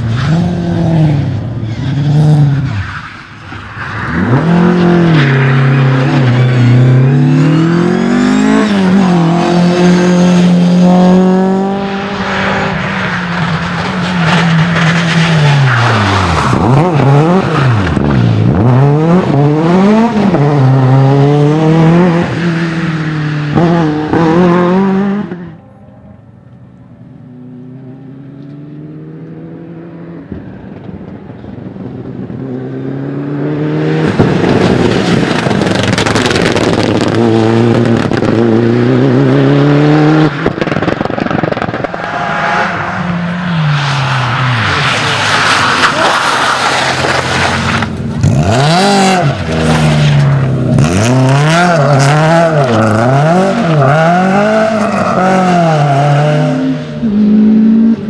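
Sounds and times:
rally car engines revving: 0.0 - 26.2, 27.0 - 58.0
distant car engine: 0.0 - 58.0.

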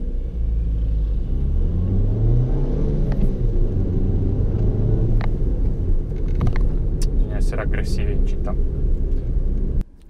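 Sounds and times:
car engine from inside cabin: 0.0 - 10.0
road rumble: 0.0 - 10.0.

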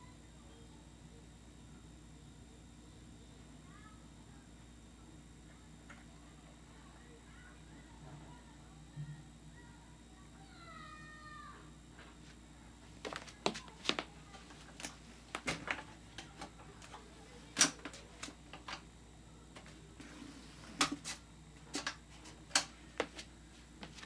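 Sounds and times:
faint low hum: 0.0 - 24.0
fan being handled clicks: 17.6 - 18.8, 20.8 - 22.7.

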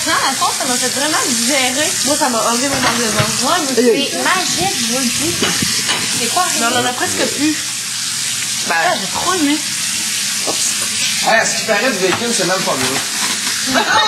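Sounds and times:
food sizzling in a pan: 0.0 - 14.0
people chattering: 2.0 - 7.6.

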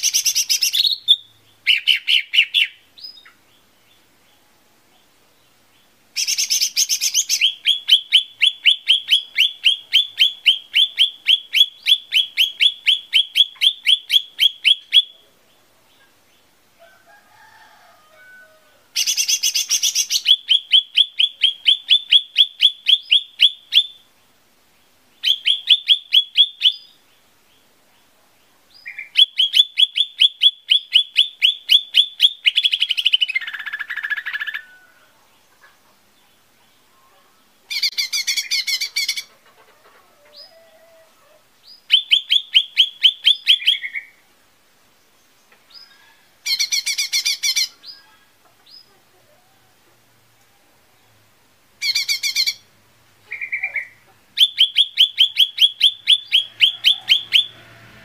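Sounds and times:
bird whistling song: 0.0 - 3.4, 6.2 - 15.2, 19.0 - 24.1, 25.2 - 27.0, 28.7 - 34.8, 37.7 - 39.3, 41.6 - 44.2, 45.7 - 48.2, 51.8 - 52.7, 53.3 - 57.6
buzzy bird call: 0.0 - 3.4, 6.2 - 15.3, 18.8 - 24.0, 36.9 - 44.2, 45.7 - 49.4, 51.8 - 58.0.

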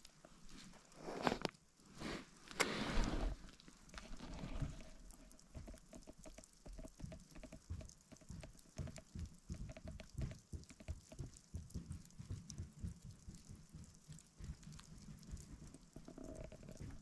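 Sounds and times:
snow pattering on tent: 0.0 - 6.8
tent fabric rustling: 0.4 - 4.8.

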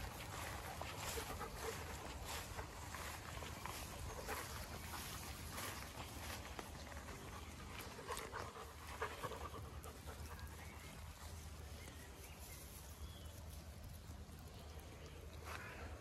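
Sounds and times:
rustling in long grass: 0.0 - 15.8
dog panting: 0.1 - 6.2, 6.8 - 10.6.

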